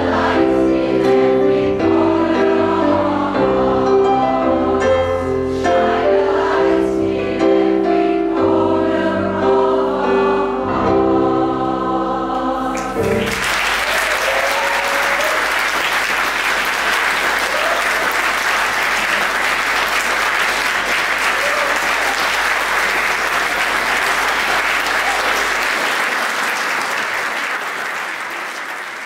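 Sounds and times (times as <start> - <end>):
audience applauding: 12.7 - 29.0.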